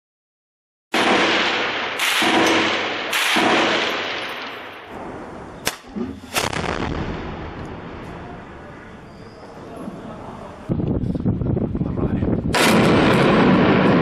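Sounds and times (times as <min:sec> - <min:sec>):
loud gunshots echoing: 0:00.9 - 0:08.8, 0:12.5 - 0:14.0
short sharp cracks: 0:05.6 - 0:06.8.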